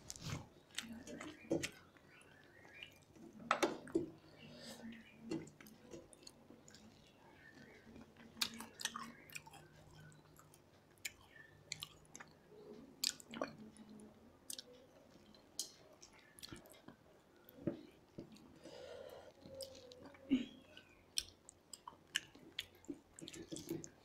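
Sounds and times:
chewing and mouth smacks: 5.3s - 12.4s, 13.0s - 13.8s, 14.5s - 18.5s, 19.4s - 20.2s, 20.8s - 24.0s.

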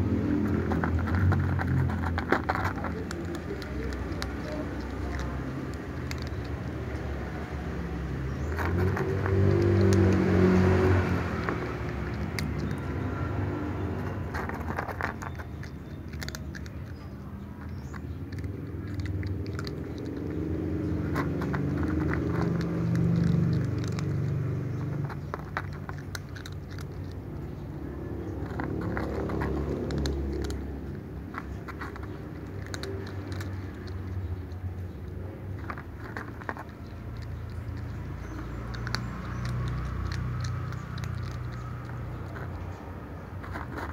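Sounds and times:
cat crunching dry kibble: 0.0s - 43.9s.

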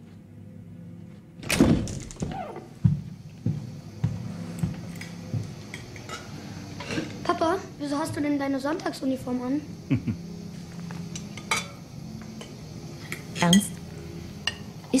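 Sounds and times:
door squeaking: 1.4s - 2.8s
heavy footsteps on a wooden floor: 2.6s - 5.6s.

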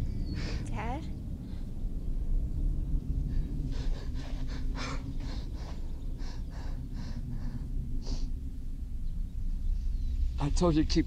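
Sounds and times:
low steady rumble: 0.0s - 11.0s
quick heavy breathing: 3.3s - 8.3s.

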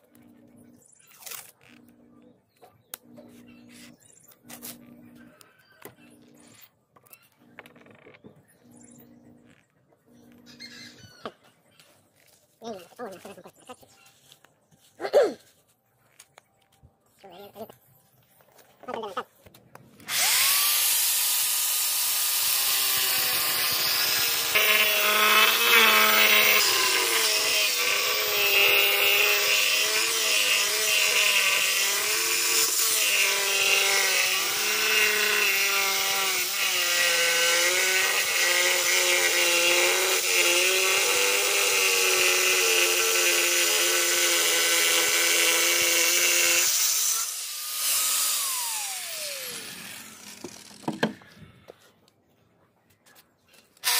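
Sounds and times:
electric power tool cutting: 2.9s - 6.6s, 20.0s - 51.2s.

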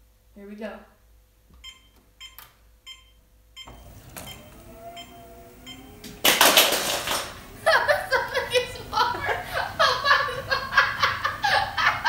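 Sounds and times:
treadmill motor whirring: 3.6s - 12.0s.

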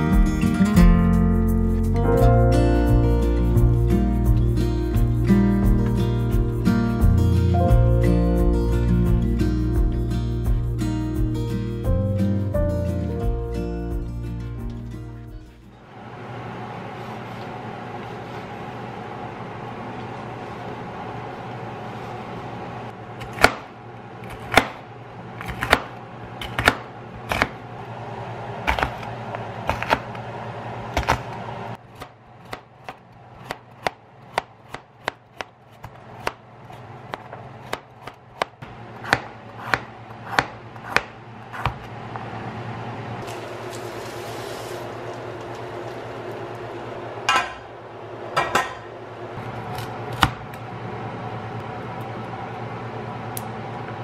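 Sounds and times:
steady low hum: 0.0s - 54.0s
knife chopping on plastic board: 23.2s - 23.7s, 24.3s - 24.8s, 25.4s - 27.6s, 28.7s - 29.1s, 29.7s - 30.1s, 31.0s - 31.3s, 31.9s - 36.4s, 37.1s - 41.8s.

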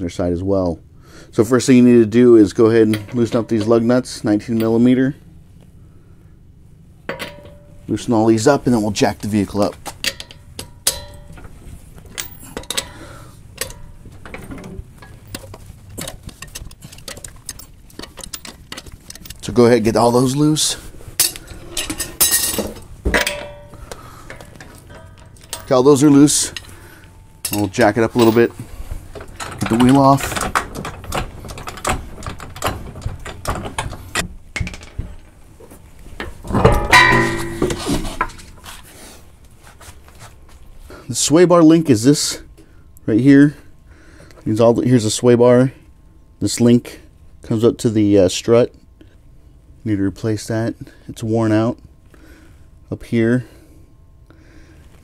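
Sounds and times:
lug nuts clicking and clinking: 7.1s - 7.8s, 9.8s - 35.2s, 36.1s - 38.8s
ringing metallic clang: 7.1s - 7.9s, 10.0s - 11.6s, 21.2s - 28.5s, 36.5s - 38.5s.

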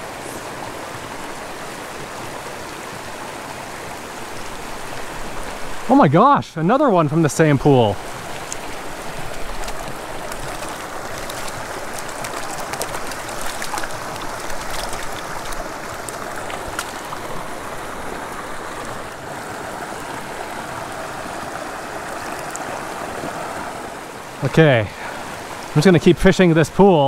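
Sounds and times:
stream babbling over gravel: 0.0s - 27.0s
light water splashes: 8.0s - 21.5s.

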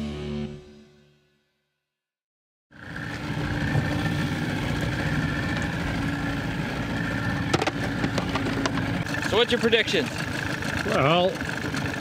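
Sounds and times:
outboard motor running: 2.7s - 12.0s.

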